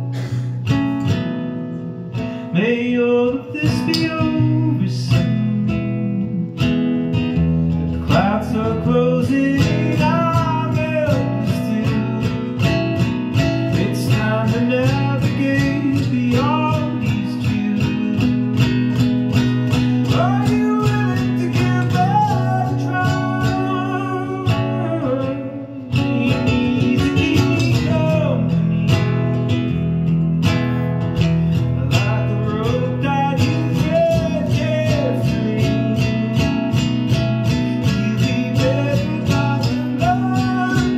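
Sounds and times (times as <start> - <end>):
acoustic guitar: 0.0 - 40.9
man singing: 2.3 - 29.8, 31.4 - 40.9.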